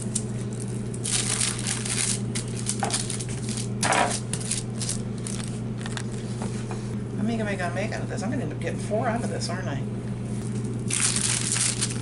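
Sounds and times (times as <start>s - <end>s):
steady low hum: 0.0s - 12.0s
wax paper crinkling: 0.1s - 6.3s, 10.4s - 12.0s
raw meat squishing: 10.9s - 12.0s.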